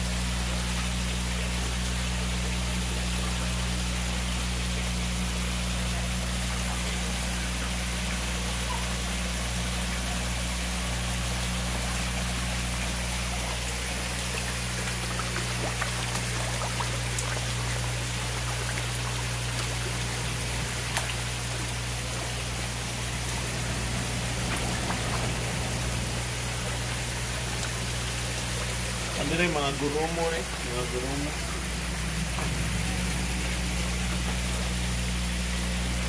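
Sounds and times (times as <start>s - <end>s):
low hum: 10.0s - 36.0s
water pouring into tank: 10.2s - 36.0s.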